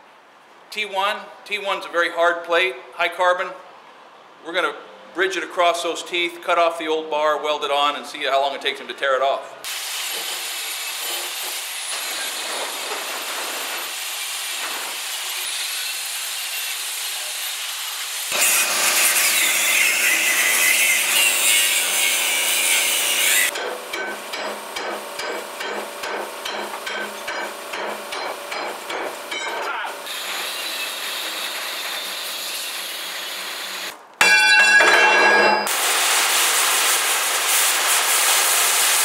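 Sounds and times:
angle grinder grinding steel: 0:09.9 - 0:24.4, 0:30.1 - 0:35.9
hammer striking metal: 0:23.5 - 0:29.9, 0:34.2 - 0:35.9
cutting torch hissing: 0:35.7 - 0:39.0.

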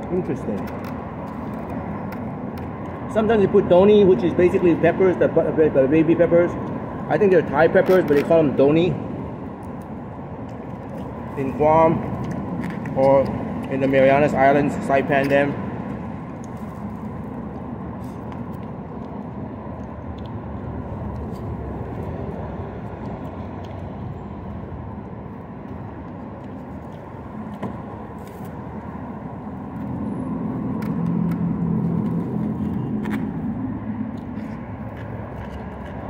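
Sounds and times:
road traffic noise: 0:00.0 - 0:36.0
vehicle engine hum: 0:00.0 - 0:36.0.

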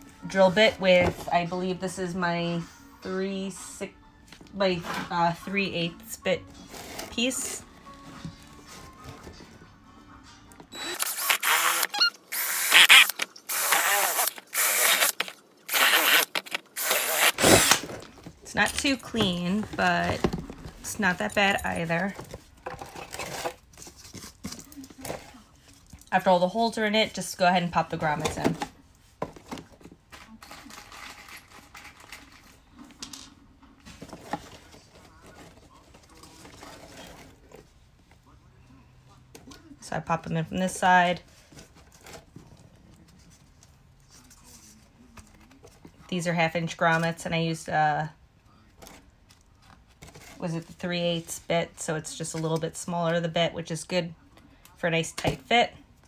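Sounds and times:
cordless drill boring tile: 0:10.8 - 0:16.2.

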